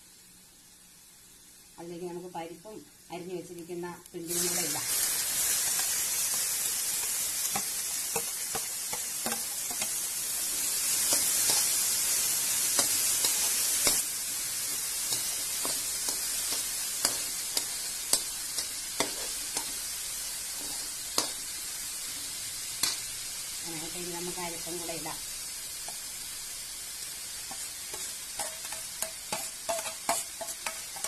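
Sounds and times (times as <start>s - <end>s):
food sizzling in hot oil: 0.0s - 31.0s
spoon scraping metal pan: 27.5s - 31.0s.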